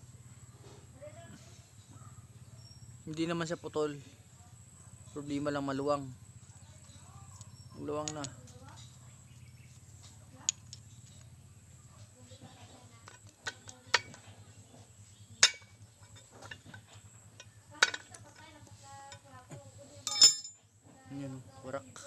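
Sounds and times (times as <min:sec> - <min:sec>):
metal parts clinking: 0:15.4 - 0:19.2, 0:20.0 - 0:20.6.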